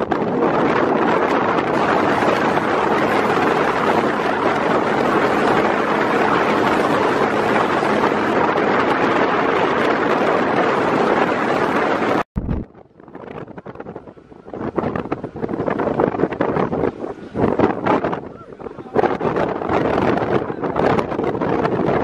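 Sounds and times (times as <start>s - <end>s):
wind rushing over microphone: 0.0s - 22.0s.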